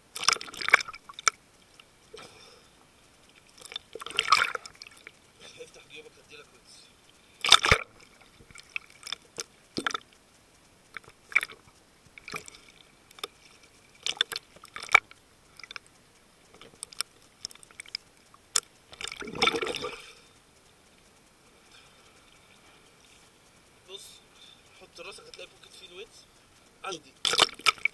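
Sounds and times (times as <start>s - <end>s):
underwater rush: 0.0s - 20.4s
water splashing against camera: 3.3s - 10.2s, 10.9s - 20.3s, 26.9s - 27.9s.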